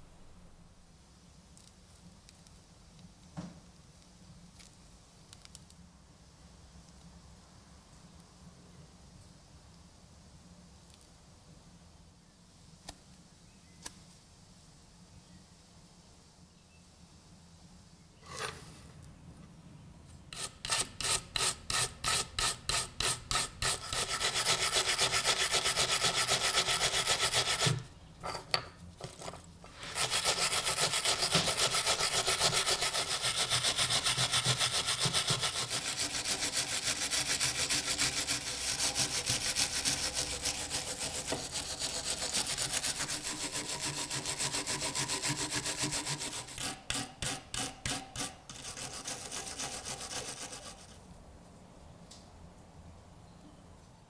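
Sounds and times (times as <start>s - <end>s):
wire brush scrubbing metal: 20.3s - 28.4s, 29.0s - 51.0s.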